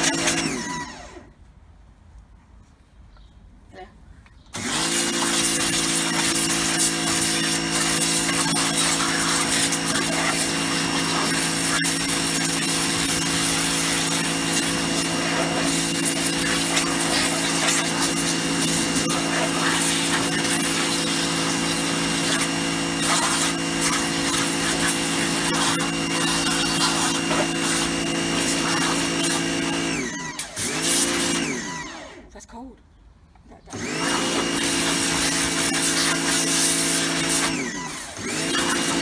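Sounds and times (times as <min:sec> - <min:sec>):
pressure washer motor humming: 0:00.0 - 0:01.3, 0:04.6 - 0:32.2, 0:33.7 - 0:39.0
water jet spraying on plastic: 0:04.6 - 0:31.6, 0:33.7 - 0:39.0.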